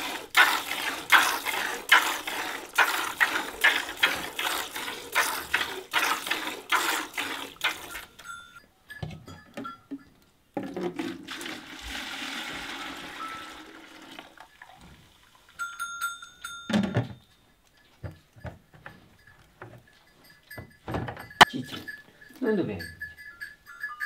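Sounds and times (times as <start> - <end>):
liquid pouring into bucket: 0.0 - 8.2, 10.6 - 15.6
plastic buckets clattering: 10.5 - 13.2.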